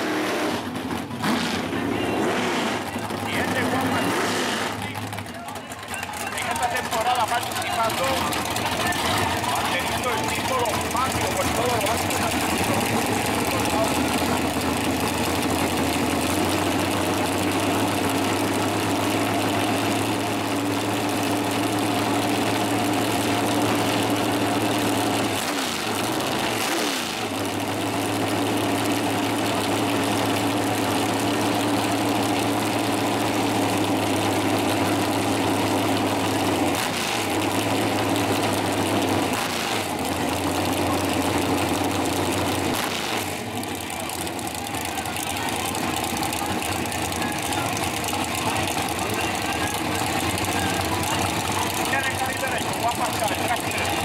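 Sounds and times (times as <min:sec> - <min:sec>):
dragster engine idling loudly: 0:00.0 - 0:54.0.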